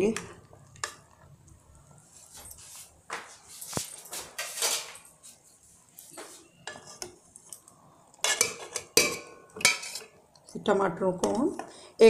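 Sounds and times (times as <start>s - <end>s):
metal spoon scraping saucepan: 6.6s - 7.1s, 8.2s - 10.2s.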